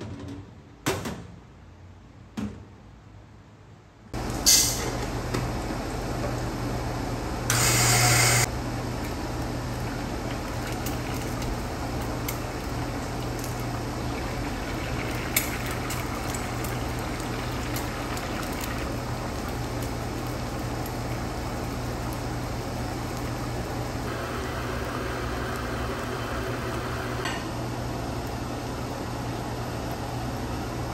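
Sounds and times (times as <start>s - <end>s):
eggs sizzling: 9.3s - 27.2s.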